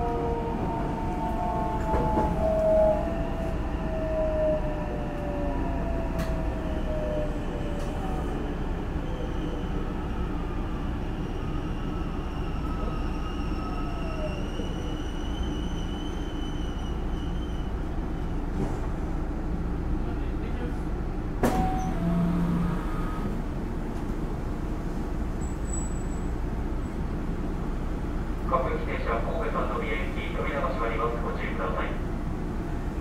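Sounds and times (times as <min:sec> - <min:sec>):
wheels rumbling on rail: 0:00.0 - 0:33.0
electric train inverter whine: 0:21.5 - 0:24.8.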